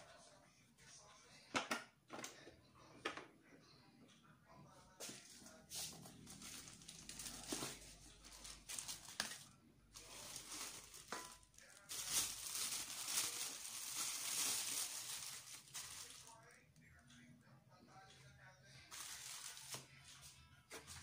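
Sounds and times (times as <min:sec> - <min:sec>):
plastic and cardboard crinkling: 0:06.0 - 0:16.6, 0:18.9 - 0:20.0.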